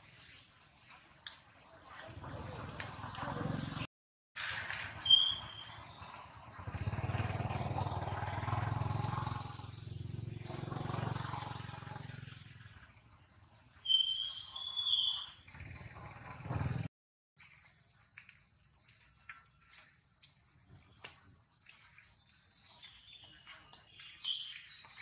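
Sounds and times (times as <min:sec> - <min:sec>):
distant engine drone: 0:05.9 - 0:13.3
high-pitched chirping calls: 0:13.8 - 0:15.5, 0:22.7 - 0:25.0.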